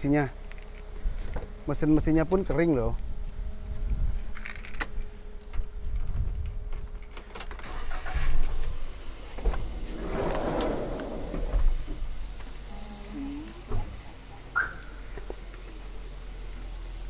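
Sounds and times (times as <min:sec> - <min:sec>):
sliding door rolling on rails: 0:09.3 - 0:12.4.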